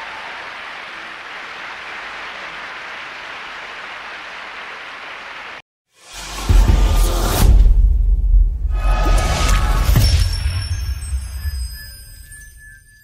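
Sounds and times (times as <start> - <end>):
large audience applauding: 0.0 - 5.6.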